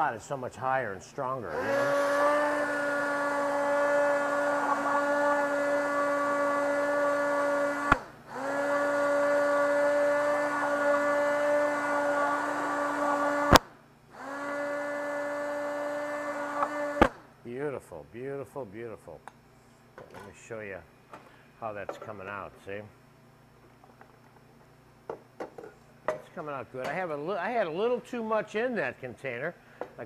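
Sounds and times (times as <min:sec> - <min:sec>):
immersion blender running: 0:01.5 - 0:17.2.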